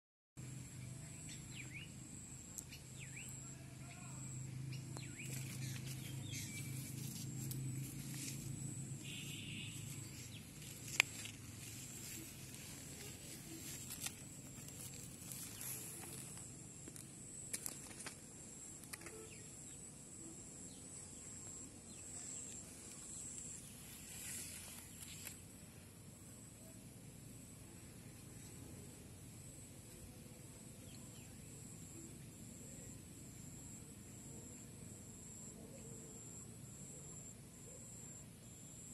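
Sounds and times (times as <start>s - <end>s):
bird chirps: 0.7s - 16.5s
high thin whine: 3.4s - 16.8s
small clicks and rustles: 10.2s - 19.4s.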